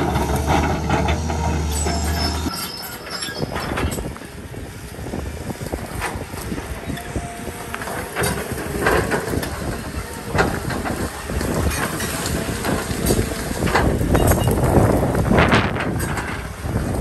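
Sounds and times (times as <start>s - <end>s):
excavator engine rumbling: 0.0s - 17.0s.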